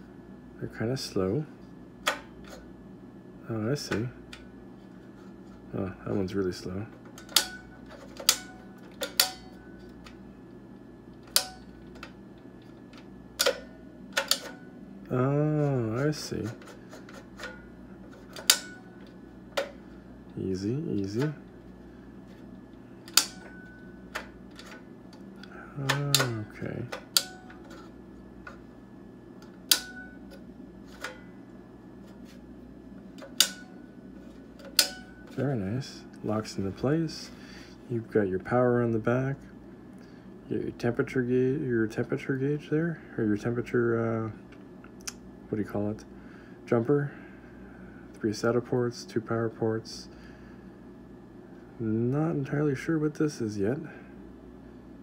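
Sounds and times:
drive trays clicking into metal cage: 7.1s - 9.6s, 25.8s - 27.9s.

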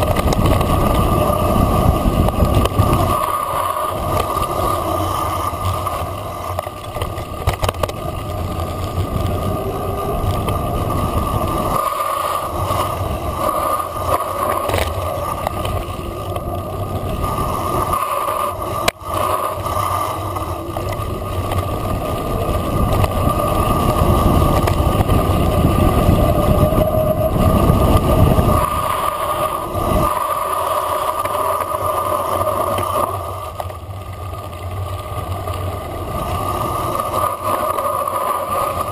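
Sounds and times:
bike knocking on bumps: 0.0s - 29.1s
tyres rumbling on dirt: 0.0s - 38.9s
wind buffeting microphone: 0.0s - 38.9s.

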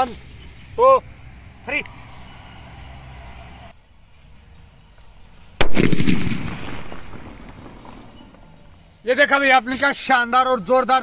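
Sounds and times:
firecracker bang with echo: 5.6s - 8.5s.

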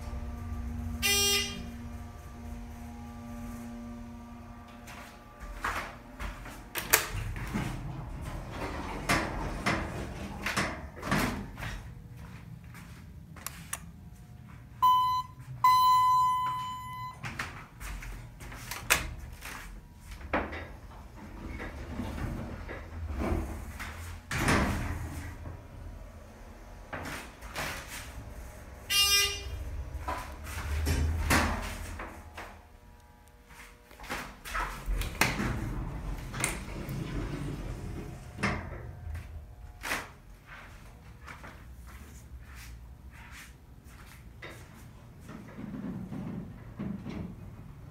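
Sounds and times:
elevator low rumble: 0.0s - 47.9s
elevator doors and car rattling: 5.6s - 12.0s, 20.3s - 32.3s, 34.5s - 40.2s
electronic beeps: 14.8s - 17.2s
brief tone: 14.8s - 17.3s, 28.9s - 29.8s.

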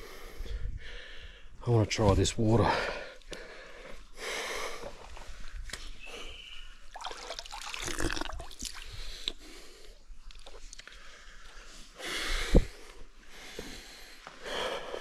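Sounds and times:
water splashing and dripping: 6.9s - 9.4s.

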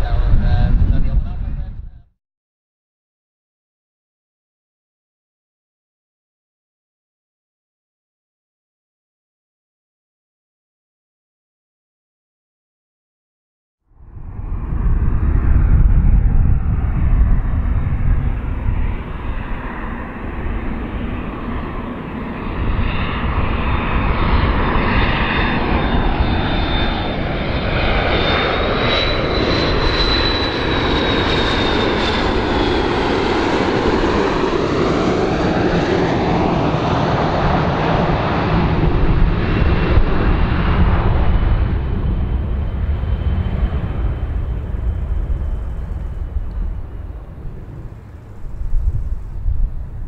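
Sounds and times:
jet airliner engines rumbling: 0.0s - 2.1s, 13.9s - 50.0s.

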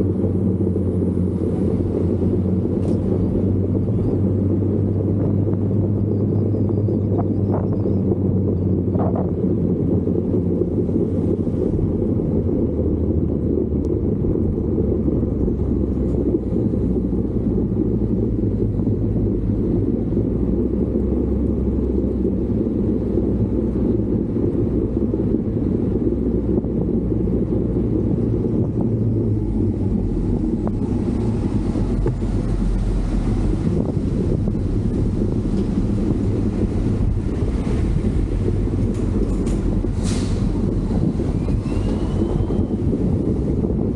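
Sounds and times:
vehicle engine drone: 0.0s - 43.9s.

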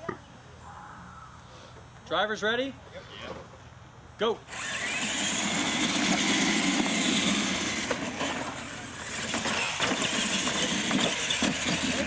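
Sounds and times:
toy truck motors whining: 4.5s - 12.0s
tyres rumbling on dirt: 4.6s - 12.0s.

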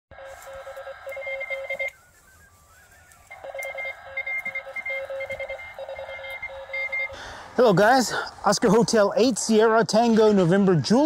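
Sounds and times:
electronic beeping tones: 0.1s - 7.2s.

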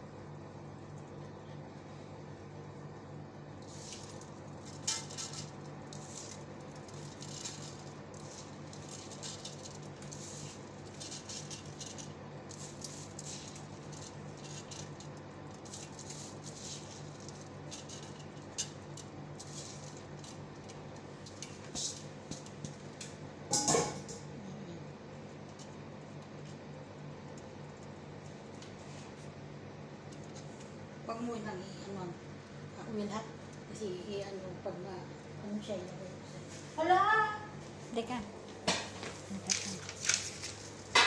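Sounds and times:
rice grains pattering into a pot: 3.5s - 23.6s, 38.6s - 41.0s.

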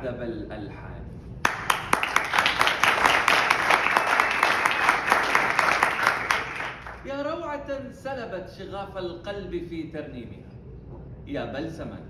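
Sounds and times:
audience applauding: 1.4s - 7.1s.

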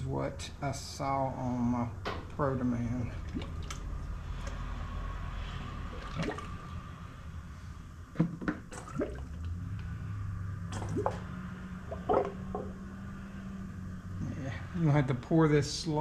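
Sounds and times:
fluid glugging from a jug: 3.1s - 4.6s, 5.8s - 6.7s, 8.2s - 9.6s, 10.7s - 11.3s, 11.9s - 12.8s.

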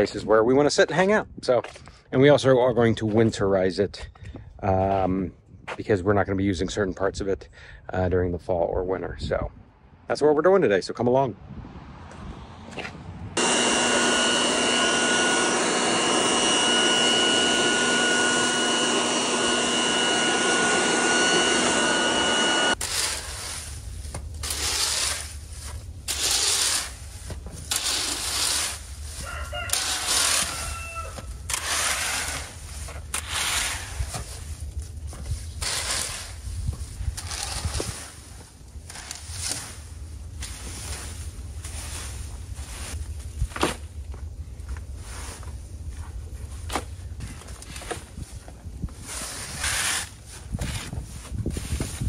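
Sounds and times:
leaf blower running: 13.4s - 22.9s
rake scraping dry leaves: 13.4s - 43.8s, 45.0s - 45.6s, 46.3s - 52.0s
chicken calling: 29.2s - 31.3s.

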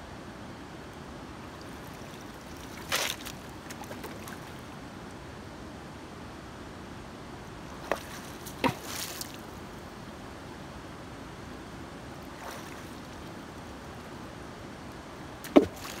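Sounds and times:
river water rushing over stones: 1.1s - 5.0s, 7.5s - 16.0s.

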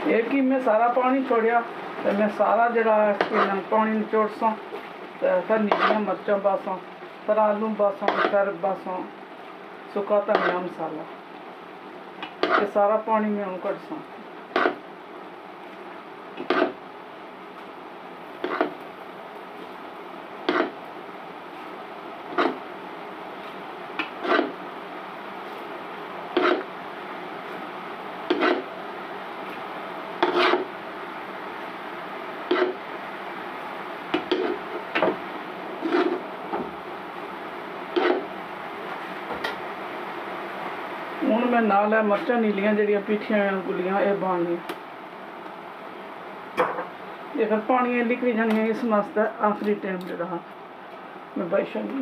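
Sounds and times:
food sizzling: 0.0s - 41.5s
spatula scraping a pot: 3.2s - 3.6s, 5.7s - 6.1s, 8.0s - 8.4s, 12.4s - 12.7s, 16.4s - 16.8s, 18.4s - 18.8s, 20.5s - 20.8s, 22.3s - 22.6s, 24.0s - 24.6s, 26.3s - 26.7s, 28.3s - 28.7s, 30.2s - 30.7s, 32.5s - 32.8s, 35.8s - 36.2s, 37.9s - 38.3s.

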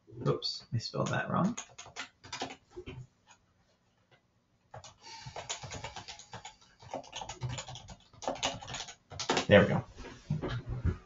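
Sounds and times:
typing on computer keyboard: 1.0s - 2.9s, 4.7s - 9.6s.

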